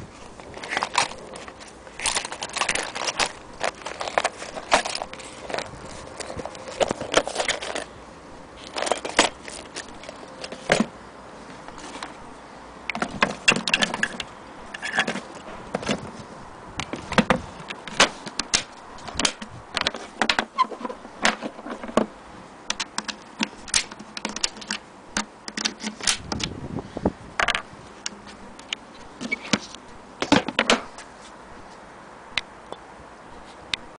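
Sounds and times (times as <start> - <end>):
case lid and latches clacking: 0.6 - 7.9, 8.6 - 10.9.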